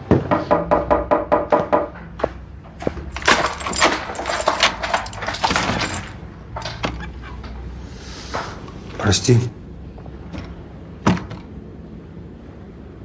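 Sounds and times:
keys rattling in a lock: 2.9s - 7.1s.

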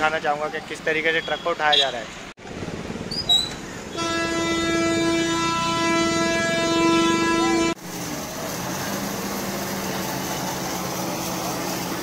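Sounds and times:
road noise: 0.0s - 12.0s
vehicle horn long note: 3.9s - 7.8s.

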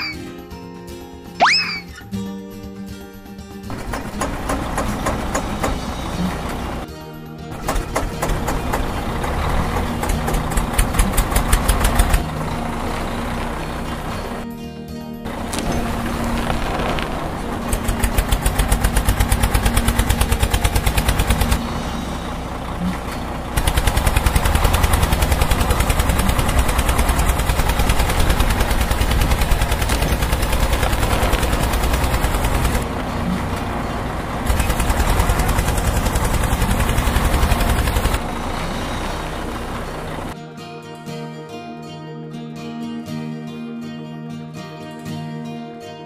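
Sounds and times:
tractor engine chugging: 3.7s - 6.9s, 7.5s - 14.5s, 15.3s - 40.4s.

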